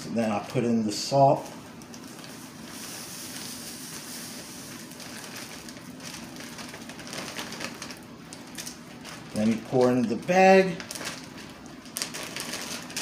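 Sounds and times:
salt pouring onto ice in plastic bag: 2.3 - 7.9.

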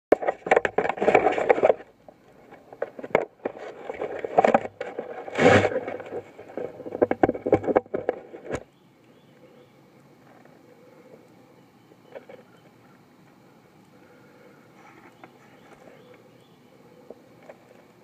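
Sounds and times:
climbing rope and gear scraping: 0.2 - 8.6.

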